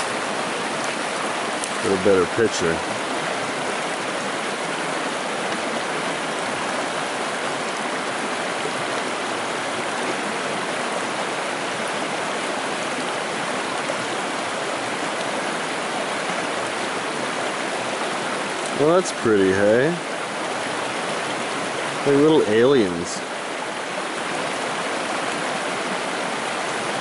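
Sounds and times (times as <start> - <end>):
stream flowing over rocks: 0.0 - 27.0.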